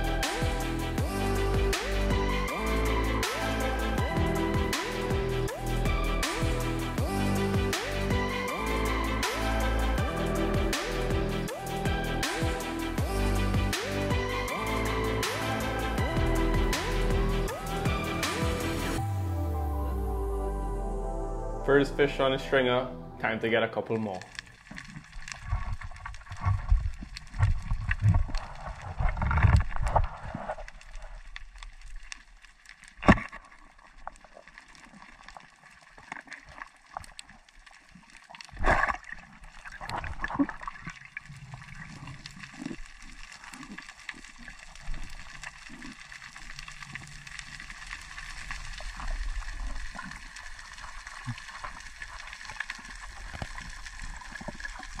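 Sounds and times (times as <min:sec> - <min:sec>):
underwater sloshing and gurgling: 0:24.2 - 0:55.0.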